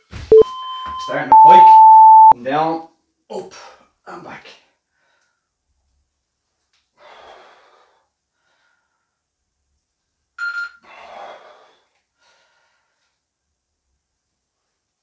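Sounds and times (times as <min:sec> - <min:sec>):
man breathing hard: 0:07.0 - 0:09.2, 0:10.8 - 0:13.2.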